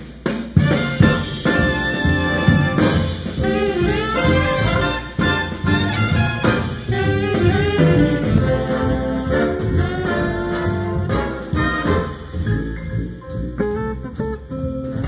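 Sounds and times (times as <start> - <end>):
big band jazz over loudspeakers: 0.0 - 15.0.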